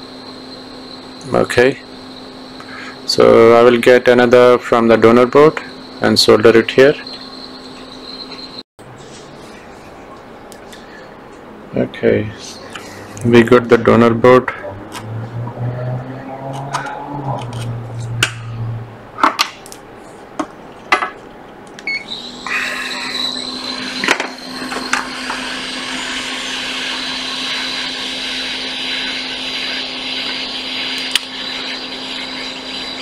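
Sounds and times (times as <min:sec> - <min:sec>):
hot-air rework station blowing: 0:21.8 - 0:33.0.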